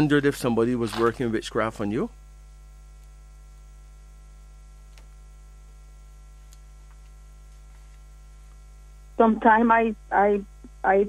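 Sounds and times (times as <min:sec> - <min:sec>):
electrical mains hum: 0:00.0 - 0:11.0
faint clicks: 0:02.9 - 0:03.2, 0:04.9 - 0:05.1, 0:06.4 - 0:08.6.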